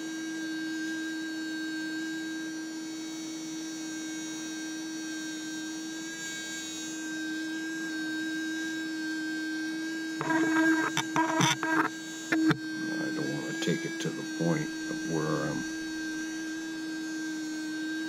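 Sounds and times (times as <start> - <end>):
sonic cleaner electric hum: 0.0 - 18.0
rattling buzz: 10.2 - 15.8.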